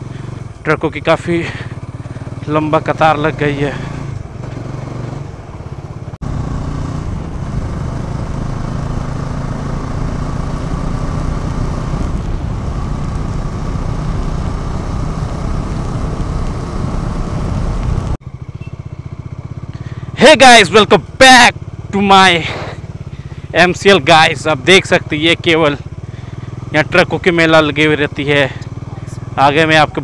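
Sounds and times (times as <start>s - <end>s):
motorcycle engine running: 0.0s - 30.0s
wind and road noise: 0.0s - 30.0s.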